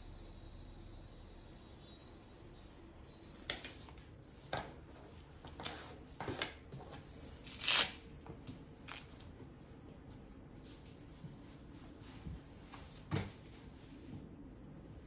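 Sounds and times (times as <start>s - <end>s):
tearing rip: 7.4s - 8.0s.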